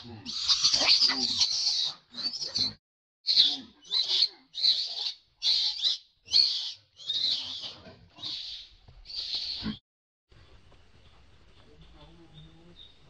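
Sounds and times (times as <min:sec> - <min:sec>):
monkey screaming: 0:00.3 - 0:02.7.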